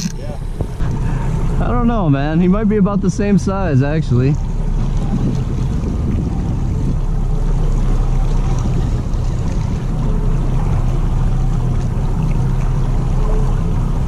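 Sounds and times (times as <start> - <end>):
wind noise: 0.0 - 1.7, 2.9 - 10.9
boat engine droning: 0.0 - 14.0
water noise: 0.0 - 14.0.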